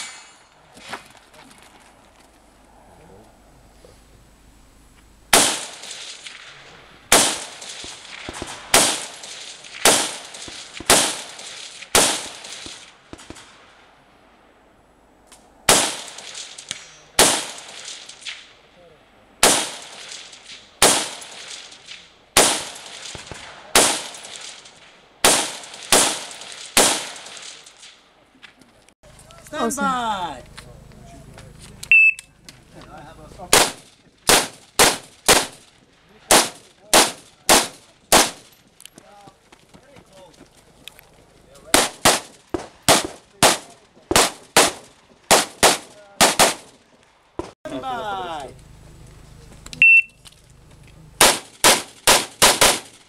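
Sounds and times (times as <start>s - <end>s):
rifle shots echoing: 5.3s - 13.7s, 15.7s - 18.6s, 19.4s - 28.0s, 33.5s - 38.6s, 41.7s - 46.9s, 51.2s - 53.0s.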